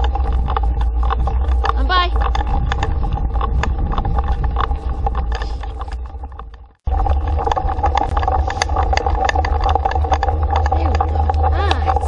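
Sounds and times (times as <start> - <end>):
rattling clicks: 0.0 - 12.0
scooter rolling over frozen road: 0.0 - 12.0
wind buffeting microphone: 0.0 - 12.0.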